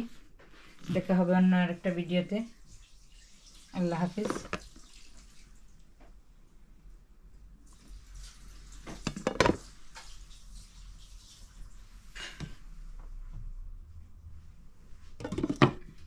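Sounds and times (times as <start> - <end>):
plastic food cover clattering: 4.2 - 4.7, 8.9 - 9.6.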